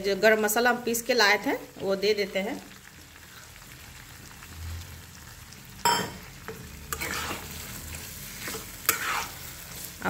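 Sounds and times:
fat sizzling in a pan: 0:00.0 - 0:10.0
spatula scraping a pan: 0:06.8 - 0:10.0.

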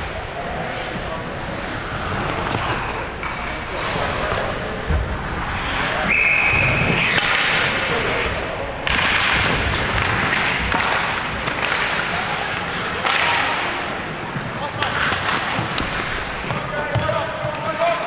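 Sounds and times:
skates scraping and knocking on ice: 0:01.6 - 0:06.1, 0:06.7 - 0:18.0
whistle blast: 0:06.0 - 0:07.2.

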